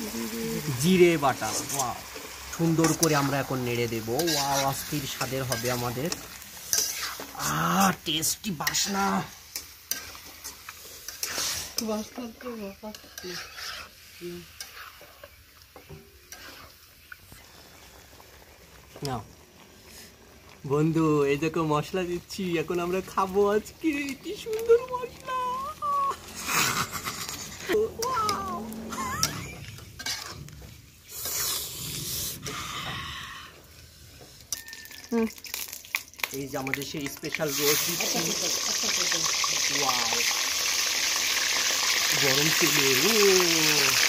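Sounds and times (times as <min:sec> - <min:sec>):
meat sizzling in oil: 0:00.0 - 0:32.4, 0:33.7 - 0:44.0
spatula scraping metal pan: 0:04.1 - 0:07.4, 0:09.6 - 0:15.4, 0:16.2 - 0:16.8, 0:28.9 - 0:31.7.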